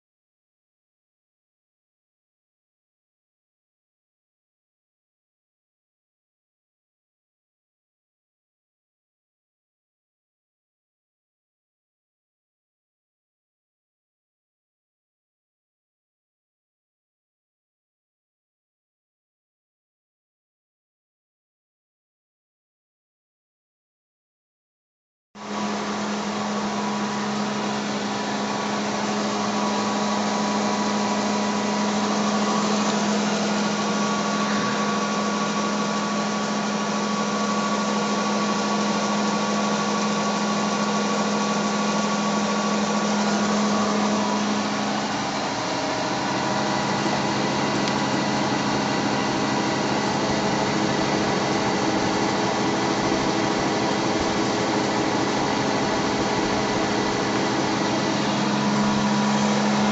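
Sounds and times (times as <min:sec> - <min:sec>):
spinning rotor whirring hum: 0:25.4 - 0:59.9.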